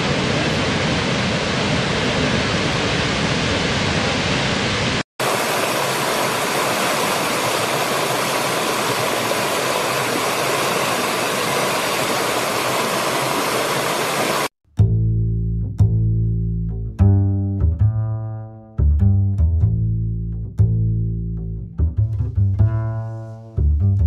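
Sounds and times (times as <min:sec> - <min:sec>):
waterfall rushing: 0:00.0 - 0:14.5
stream tumbling over rocks: 0:05.2 - 0:14.5.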